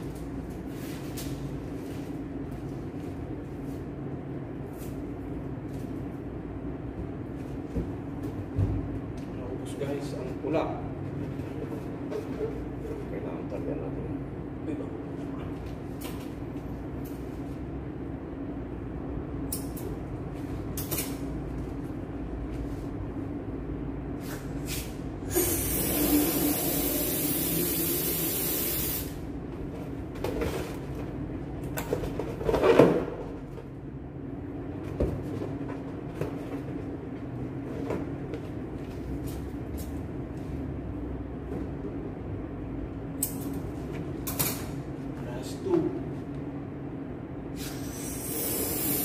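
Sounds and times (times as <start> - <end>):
steady low hum: 0.0 - 49.0
gas hissing into balloon: 25.3 - 29.2, 47.6 - 49.0.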